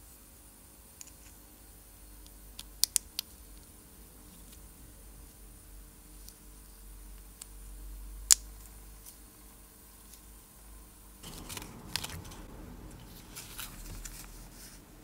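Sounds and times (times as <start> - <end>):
paper packets rustling: 11.2 - 14.9.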